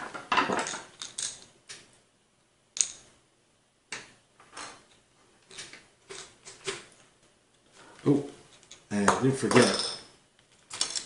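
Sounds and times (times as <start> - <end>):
screwdriver and screws clinking: 10.7 - 11.0.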